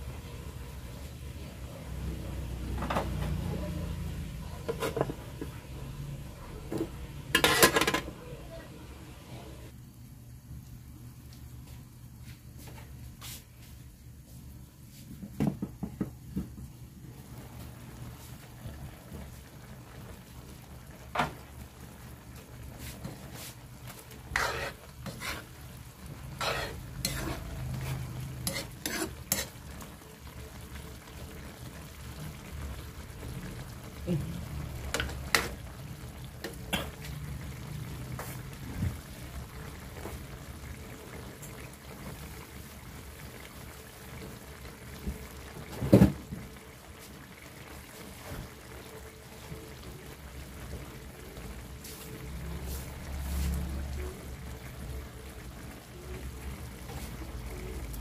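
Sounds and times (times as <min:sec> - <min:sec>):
metal spoon scraping pan: 0:07.3 - 0:08.1, 0:24.2 - 0:25.5, 0:26.4 - 0:29.6
sauce bubbling: 0:17.3 - 0:58.0.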